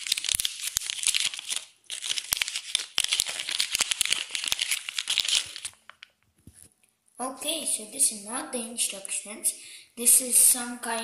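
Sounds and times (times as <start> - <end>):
paper leaflet crinkling: 0.0 - 6.7.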